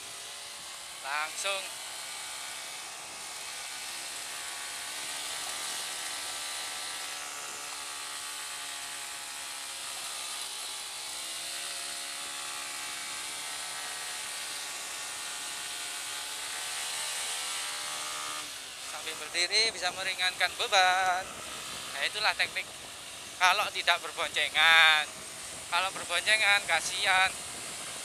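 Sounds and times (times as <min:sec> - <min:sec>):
motorcycle engine revving: 0:00.0 - 0:28.0
wind hiss on microphone: 0:18.8 - 0:28.0.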